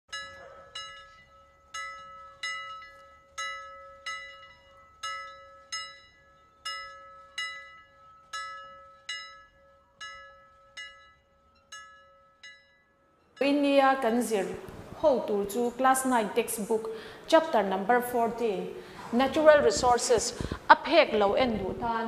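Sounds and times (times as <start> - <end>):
bell-like note struck repeatedly: 0.1 - 14.3.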